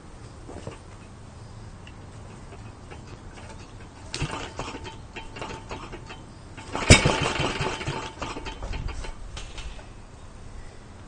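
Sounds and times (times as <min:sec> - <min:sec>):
small engine running unevenly: 0:01.8 - 0:09.2
recoil starter pulled: 0:01.8 - 0:09.8.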